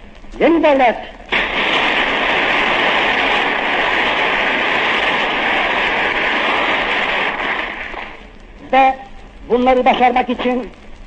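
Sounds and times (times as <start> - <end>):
crowd applauding: 1.7 - 8.2.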